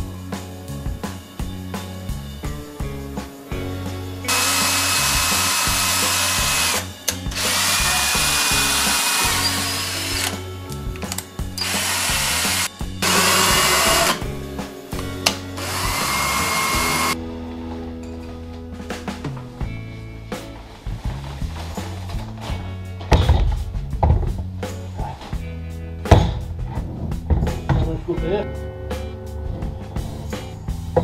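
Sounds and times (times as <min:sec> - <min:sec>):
power drill motor whine: 0:04.3 - 0:10.4, 0:11.6 - 0:14.2, 0:15.6 - 0:17.2.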